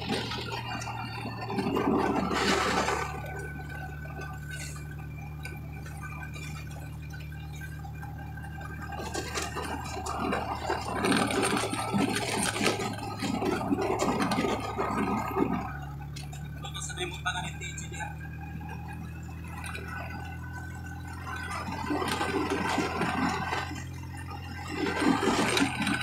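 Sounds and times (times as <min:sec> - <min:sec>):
vehicle engine hum and road noise: 0:00.0 - 0:26.0.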